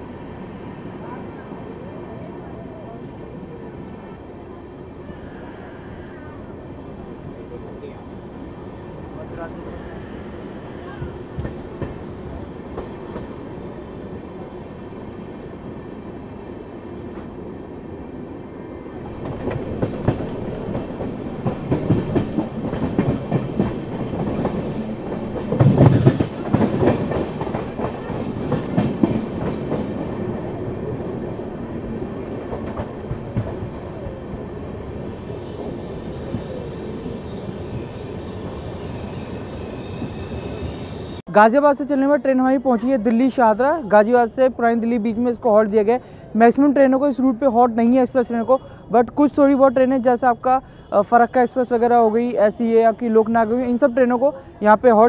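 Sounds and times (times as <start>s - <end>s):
train rumble: 5.1s - 17.6s, 18.9s - 41.3s
train wheel clatter and clicks: 11.0s - 12.0s, 19.2s - 30.6s, 32.4s - 33.9s.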